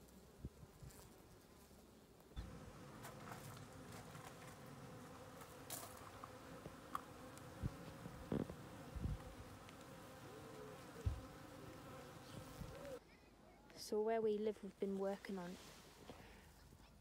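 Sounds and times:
bees buzzing: 0:02.4 - 0:13.0
soft knocks and thumps: 0:11.0 - 0:11.3.

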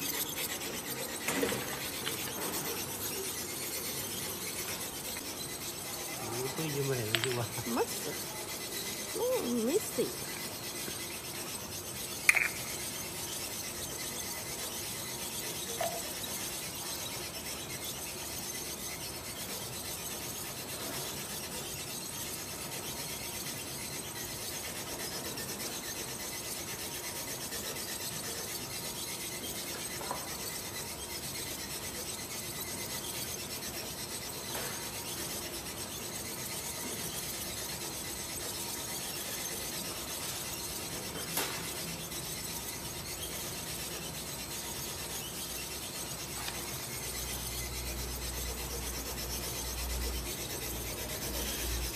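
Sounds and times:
capsules tapping on concrete: 0:06.6 - 0:08.2, 0:12.2 - 0:12.8.

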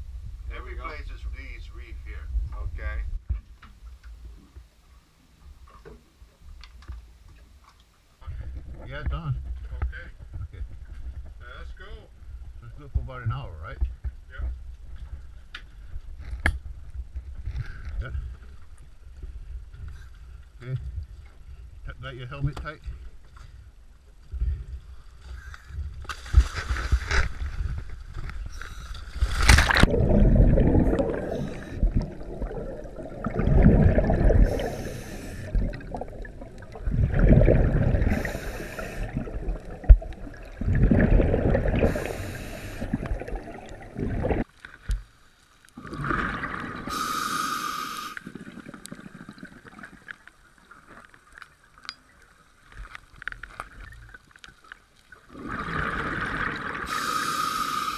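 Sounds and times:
exhaled air bubbling: 0:25.5 - 0:44.5, 0:45.8 - 0:51.4, 0:55.2 - 0:57.9
regulator hiss: 0:30.8 - 0:32.5, 0:34.3 - 0:35.8, 0:38.0 - 0:39.3, 0:41.8 - 0:43.1, 0:46.9 - 0:48.3, 0:56.9 - 0:57.9.

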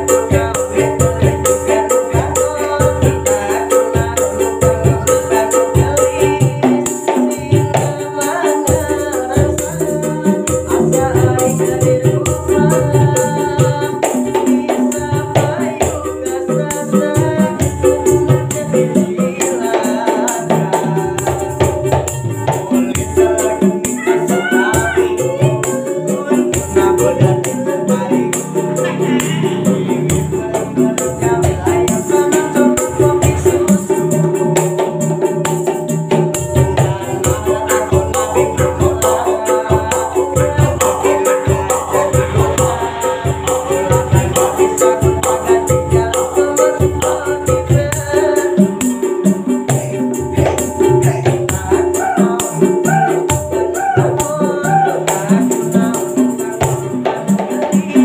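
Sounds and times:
man singing: 0:00.0 - 0:58.0
pipe hand drums slapped: 0:20.4 - 0:58.0.

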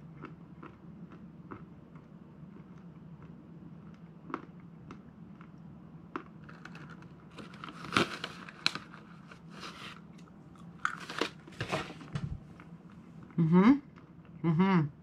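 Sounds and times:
chewing and crunching peanuts: 0:00.0 - 0:09.3, 0:10.0 - 0:11.4, 0:12.5 - 0:14.5
plastic bag crinkling: 0:06.5 - 0:10.0, 0:10.8 - 0:12.1.

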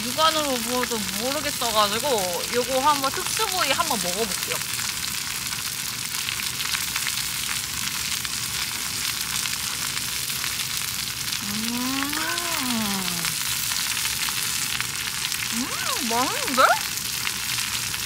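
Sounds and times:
meat sizzling on griddle: 0:00.0 - 0:18.0
person humming a note: 0:11.4 - 0:13.4.

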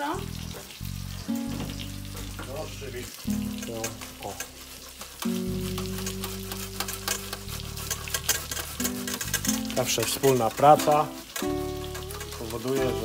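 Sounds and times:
background music low notes: 0:00.0 - 0:13.0
grater rasping scrapes: 0:03.8 - 0:13.0.

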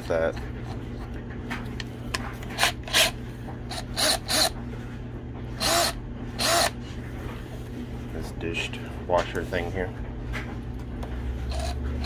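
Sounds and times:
cordless drill whirring: 0:02.6 - 0:04.6, 0:05.6 - 0:06.8, 0:11.5 - 0:11.8.

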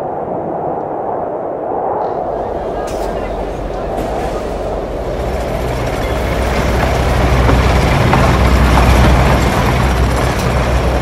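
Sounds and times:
dense low rumbling: 0:00.0 - 0:11.0.

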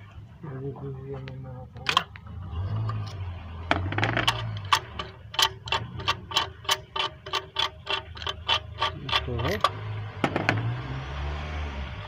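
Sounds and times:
ratchet wrench clicking: 0:03.7 - 0:09.8.

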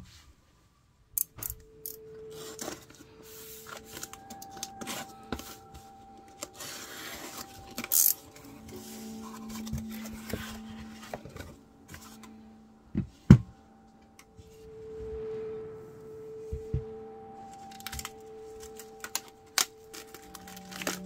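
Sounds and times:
soft slow background music: 0:01.4 - 0:21.0.

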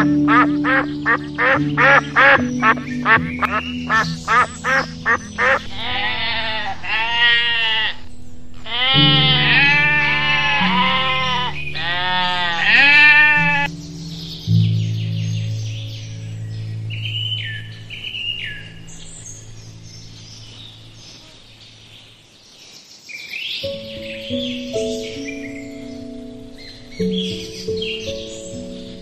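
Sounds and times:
ducks quacking: 0:00.0 - 0:13.7
soft background music: 0:00.0 - 0:22.3, 0:23.6 - 0:29.0
sheep bleating: 0:05.4 - 0:08.0, 0:08.6 - 0:13.7.

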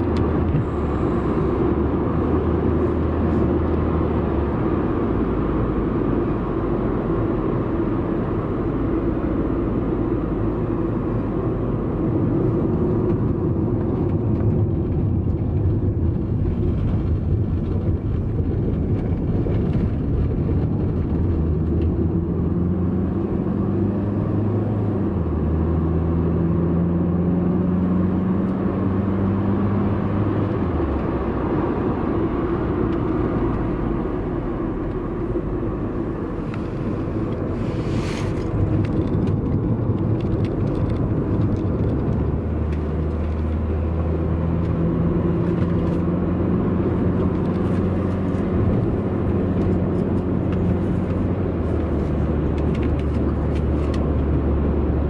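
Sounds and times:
deeper engine drone: 0:00.0 - 0:55.0
vehicle rumble from inside cabin: 0:00.0 - 0:55.0.

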